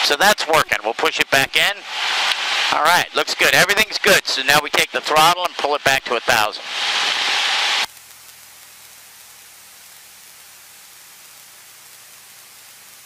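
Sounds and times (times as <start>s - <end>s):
faint steady hiss: 0.0s - 13.0s
headset microphone hiss: 0.0s - 13.0s.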